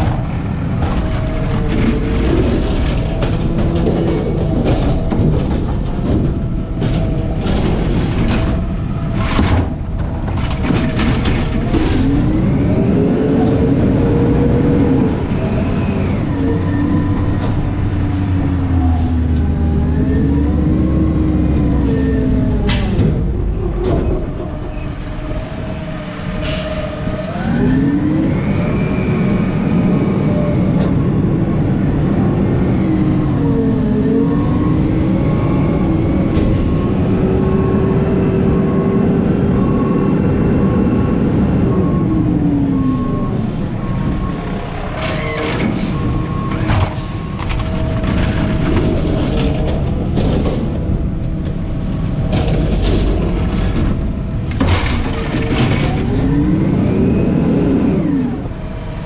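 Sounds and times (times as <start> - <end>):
truck body rattling and knocking: 0.0 - 12.5, 45.1 - 56.2
garbage truck diesel engine accelerating: 0.0 - 59.0.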